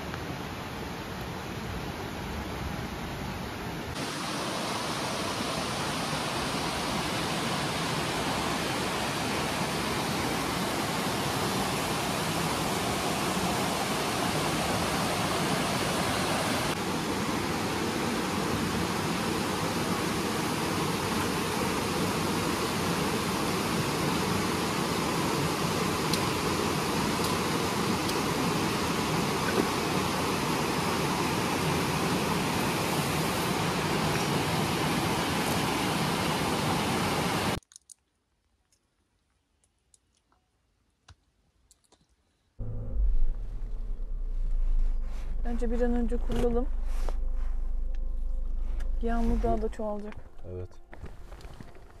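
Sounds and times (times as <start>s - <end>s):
stream rushing over rocks: 4.0s - 37.6s.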